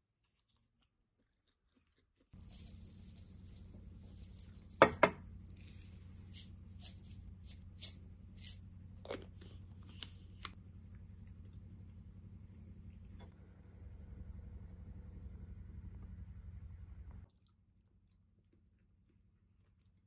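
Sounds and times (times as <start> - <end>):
steady low hum: 2.3 - 20.0
shaker tapping and rattling: 2.4 - 8.5.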